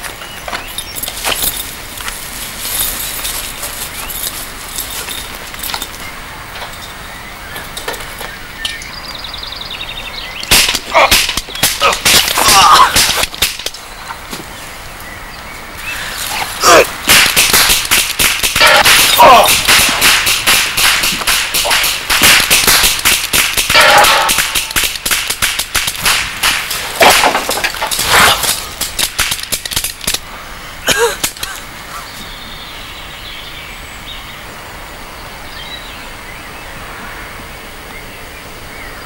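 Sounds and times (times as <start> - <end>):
pistol gunfire: 17.1 - 27.4.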